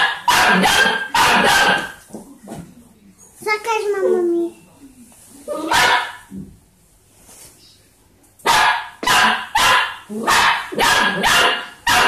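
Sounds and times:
puppy barking: 0.0s - 2.0s, 5.6s - 6.3s, 8.4s - 12.0s.

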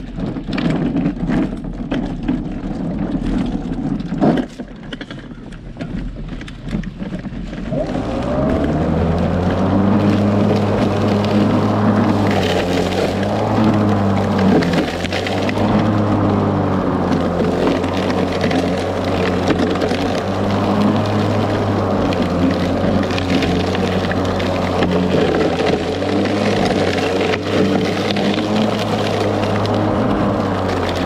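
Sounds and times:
crackling ticks of cut grass: 0.0s - 31.0s
electric lawn mower humming: 7.7s - 31.0s.

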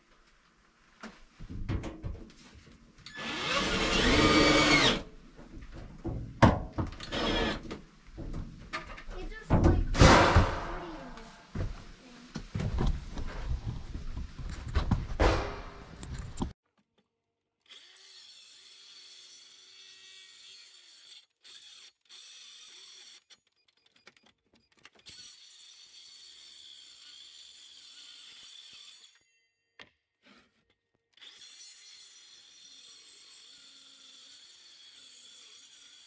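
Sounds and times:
circular saw cutting wood: 3.1s - 5.1s, 7.0s - 7.6s.

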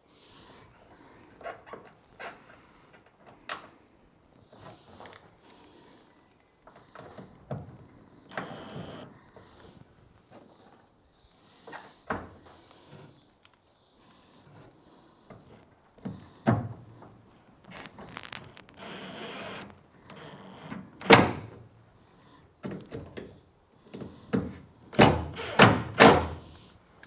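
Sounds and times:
cordless drill running: 8.3s - 9.1s, 18.3s - 21.6s, 25.3s - 25.9s.

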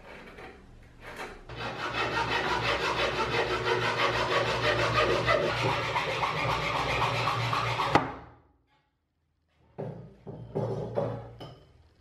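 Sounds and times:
hacksaw cutting wood: 1.5s - 8.1s.

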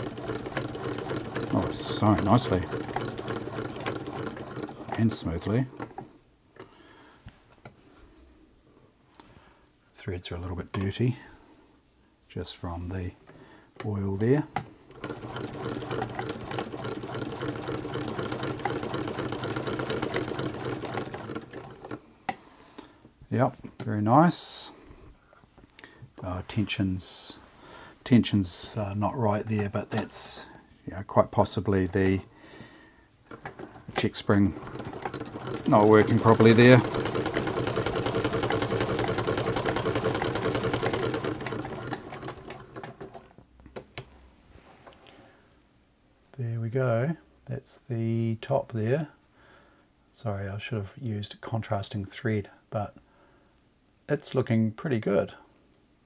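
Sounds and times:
sewing machine clatter: 0.0s - 6.1s, 14.6s - 22.0s, 33.3s - 43.4s.

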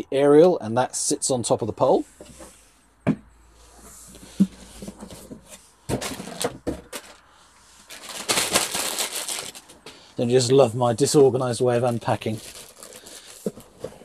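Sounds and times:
plastic wrapping crinkling: 6.0s - 9.8s, 11.8s - 14.0s.

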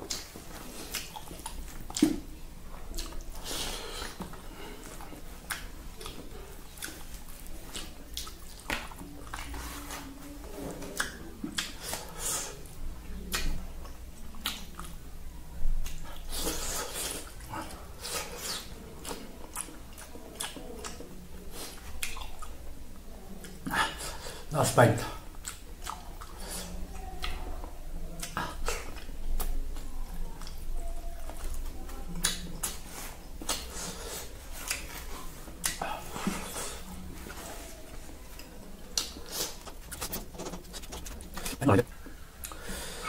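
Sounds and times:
mouth sounds of eating: 0.0s - 43.0s
fingers squishing food on plastic plate: 38.0s - 42.6s.

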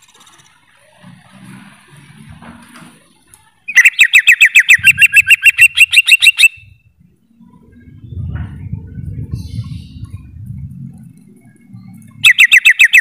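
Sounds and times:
bird singing sharp notes: 11.3s - 13.0s.

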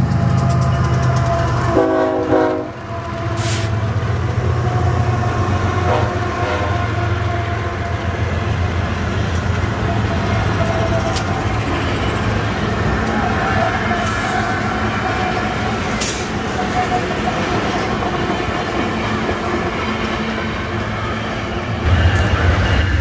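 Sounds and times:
train horn blast: 1.6s - 3.9s, 5.7s - 7.8s.

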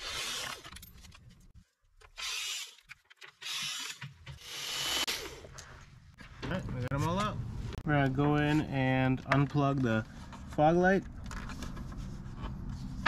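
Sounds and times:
cordless drill whirring: 0.0s - 0.6s, 2.2s - 2.8s, 3.4s - 5.4s.

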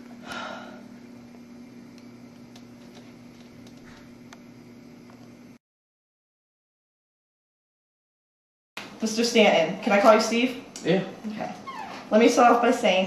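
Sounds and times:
low electrical hum: 0.0s - 5.6s, 8.8s - 13.0s.

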